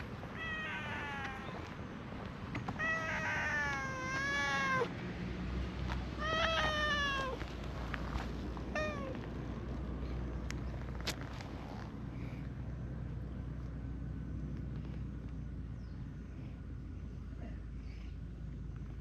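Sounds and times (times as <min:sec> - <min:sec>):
cat meowing: 0:00.3 - 0:01.6, 0:02.8 - 0:04.9, 0:06.2 - 0:07.4.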